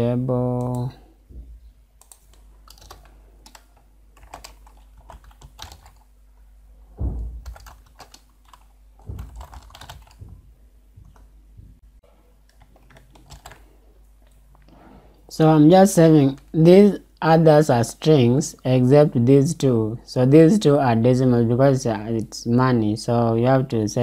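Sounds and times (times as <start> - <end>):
low thumps: 7.0 - 7.8, 9.0 - 12.0.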